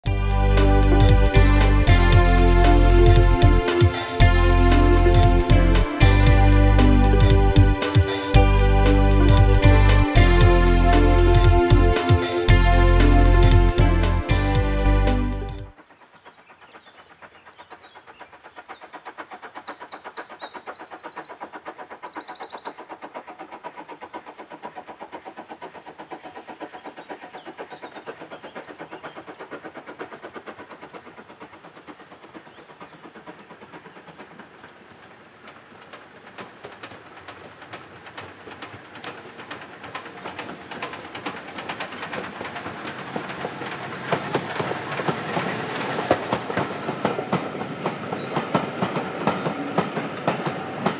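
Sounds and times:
steam locomotive exhaust beats: 0.0 - 50.9
wheels clicking over rail joints: 15.7 - 50.9.

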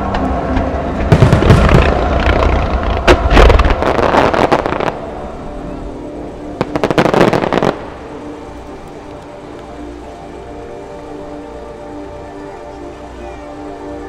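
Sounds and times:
fireworks bangs and crackles: 0.1 - 5.1, 6.5 - 7.9
sharp firework cracks: 1.1 - 5.1, 6.6 - 7.9.

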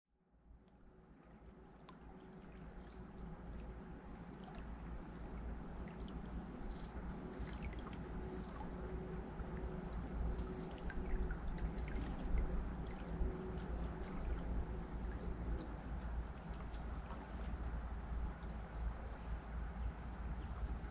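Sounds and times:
river water flowing: 0.8 - 20.9
small birds chirping: 4.3 - 8.6.

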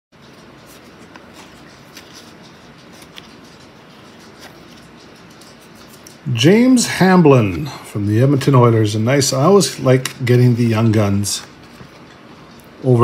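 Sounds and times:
steady low hiss: 0.2 - 13.0
cards being flipped through: 0.6 - 6.3.

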